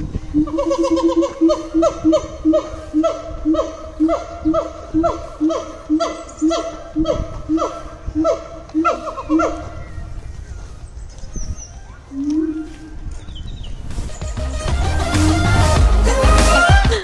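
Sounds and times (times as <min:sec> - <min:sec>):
gibbons calling: 0:00.2 - 0:13.6.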